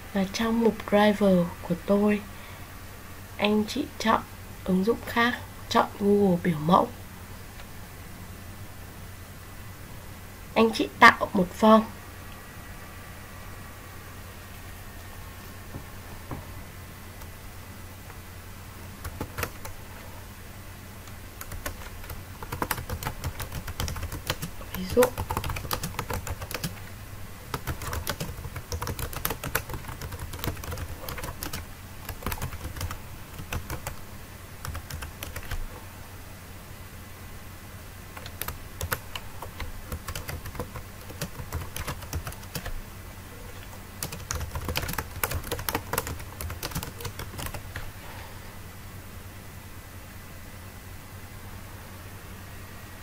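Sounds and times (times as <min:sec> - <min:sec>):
typing on computer keyboard: 0:19.0 - 0:19.8, 0:21.4 - 0:26.8, 0:27.5 - 0:34.0, 0:34.6 - 0:35.6, 0:38.2 - 0:42.8, 0:43.6 - 0:47.7.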